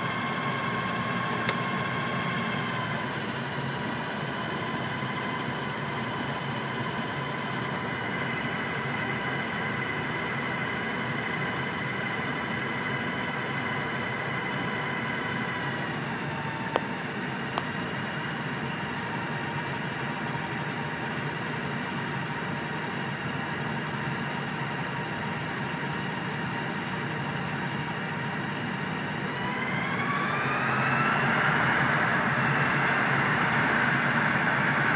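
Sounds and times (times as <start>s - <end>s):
diesel engine whining under load: 0.0s - 34.9s.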